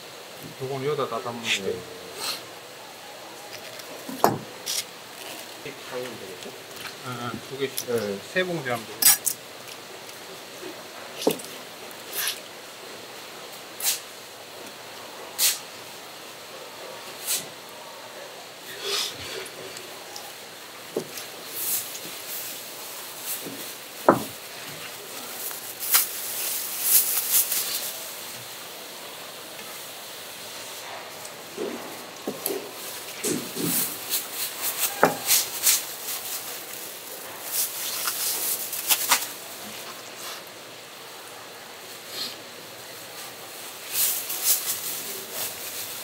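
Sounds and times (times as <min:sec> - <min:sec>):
plastic bags rustling: 0:18.8 - 0:28.6, 0:30.3 - 0:40.4, 0:42.8 - 0:46.0.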